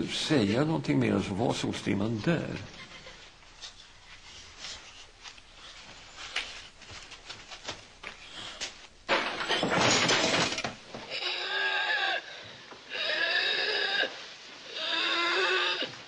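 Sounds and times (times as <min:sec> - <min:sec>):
knocks and scuffling: 0:02.5 - 0:11.1.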